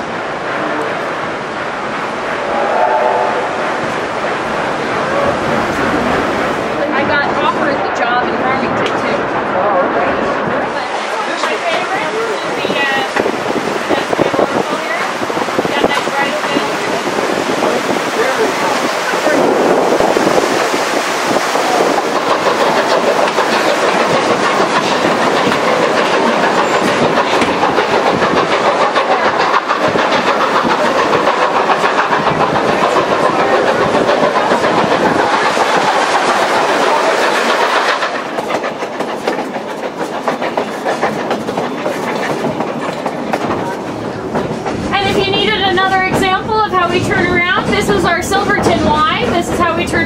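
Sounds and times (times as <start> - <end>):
train rolling on rails: 0.0 - 50.0
wheels clattering over track: 10.0 - 50.0.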